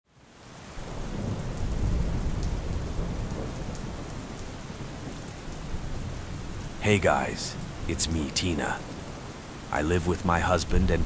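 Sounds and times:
steady rain: 0.1s - 11.0s
low roll of thunder: 0.8s - 8.0s.

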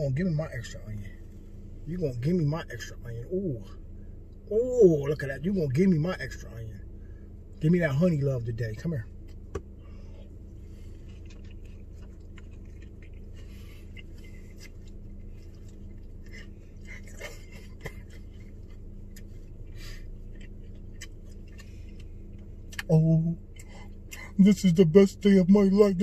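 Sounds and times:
low car cabin hum: 0.0s - 26.0s
mouth chewing clicks and smacks: 10.9s - 22.9s, 23.5s - 24.4s.

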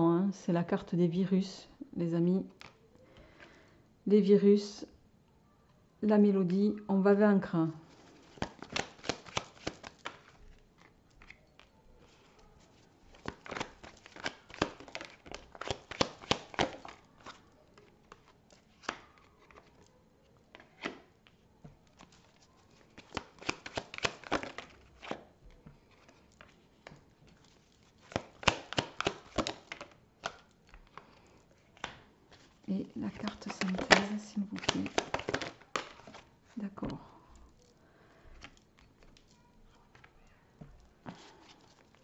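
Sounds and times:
cards being shuffled: 7.8s - 36.6s
card clicks: 8.4s - 10.3s, 28.1s - 31.0s, 33.0s - 36.2s.

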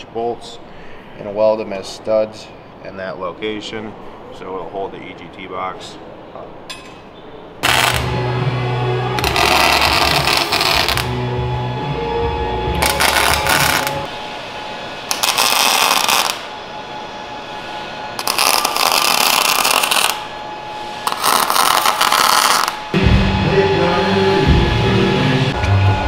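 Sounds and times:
welder crackling: 7.6s - 8.2s, 9.2s - 11.2s, 12.8s - 14.1s, 15.1s - 16.5s, 18.2s - 20.2s, 21.1s - 22.9s.

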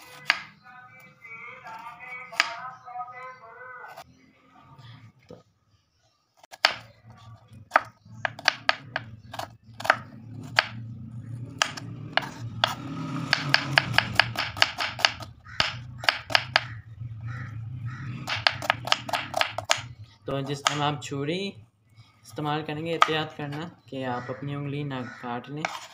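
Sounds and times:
knife chopping on wooden board: 6.5s - 6.9s, 7.7s - 10.8s, 11.6s - 16.8s, 18.2s - 19.9s, 20.6s - 20.8s, 25.6s - 25.9s.

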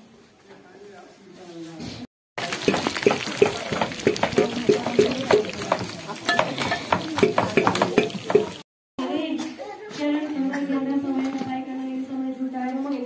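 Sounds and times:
frying sizzle: 2.4s - 8.7s.

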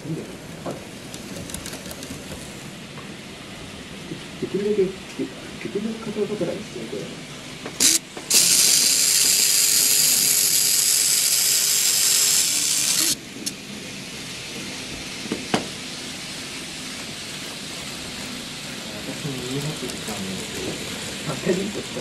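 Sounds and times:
model turntable drive whirring: 1.0s - 2.7s, 7.7s - 13.6s.

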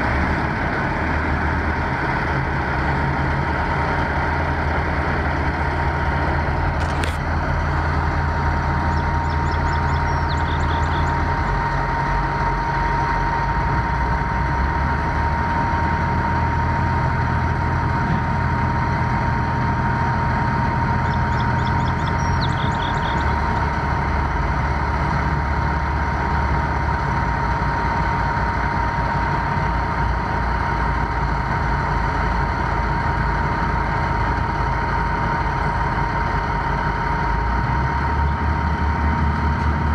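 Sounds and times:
diesel engine idling: 0.0s - 39.9s
bird chirping: 8.9s - 11.2s, 21.0s - 23.4s.

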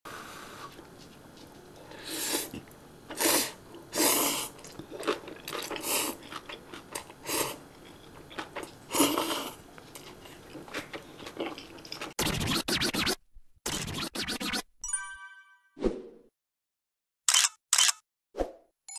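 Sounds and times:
noodles being slurped: 1.9s - 13.1s
chewing: 4.6s - 12.2s.

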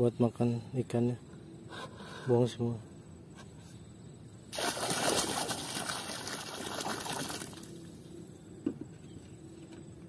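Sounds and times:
water splashing into water: 4.5s - 8.0s.

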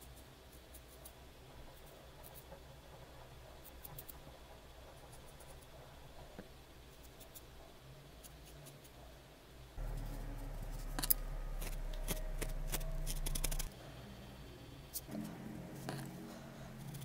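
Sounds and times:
low steady hum: 0.0s - 17.0s
scissors snipping: 11.0s - 13.7s.

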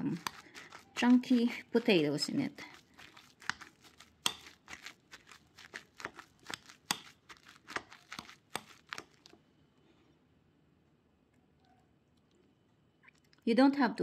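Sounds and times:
potato masher mashing: 0.0s - 9.4s.

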